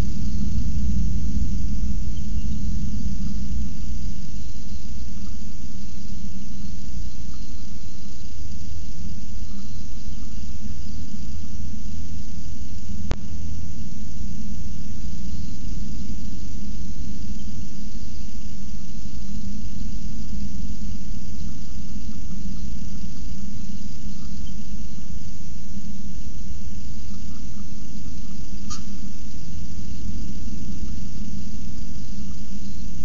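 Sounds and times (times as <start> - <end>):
wind buffeting nest box: 0.0 - 7.2
sharp click: 28.7 - 28.9.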